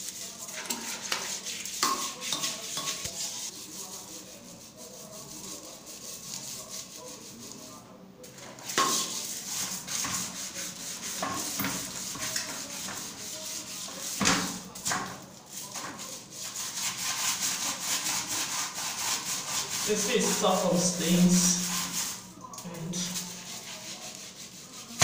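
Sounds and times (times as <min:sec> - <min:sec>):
toilet brush scrubbing bowl: 0:00.0 - 0:25.0.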